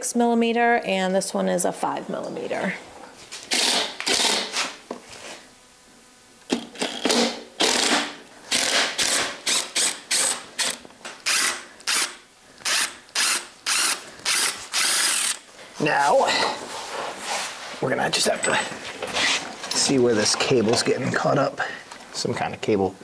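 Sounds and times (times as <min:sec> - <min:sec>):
cordless drill running in bursts: 0:03.5 - 0:04.6, 0:06.8 - 0:15.5.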